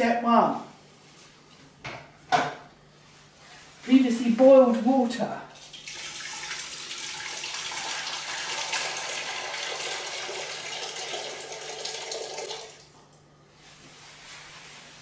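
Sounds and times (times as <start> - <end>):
water pouring into a metal pot: 5.6 - 12.8.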